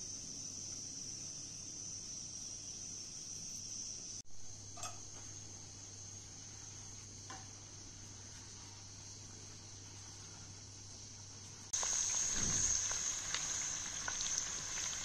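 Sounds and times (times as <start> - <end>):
crickets chirping: 0.0 - 15.0
spoon clinking against pot: 4.8 - 5.1.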